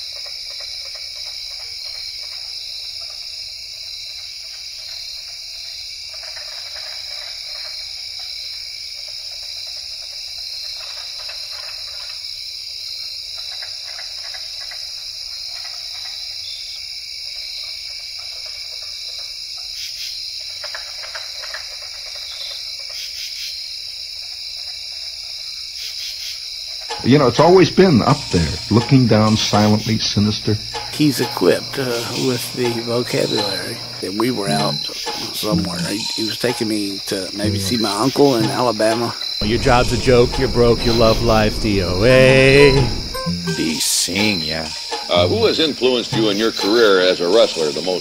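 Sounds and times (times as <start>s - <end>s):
high-pitched drone: 27.8s - 36.3s, 39.4s - 44.2s.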